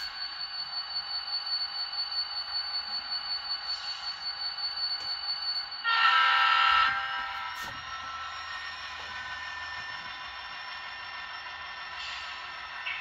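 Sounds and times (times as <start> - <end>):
model locomotive engine hum: 0.0 - 13.0
locomotive horn blast: 5.8 - 7.6.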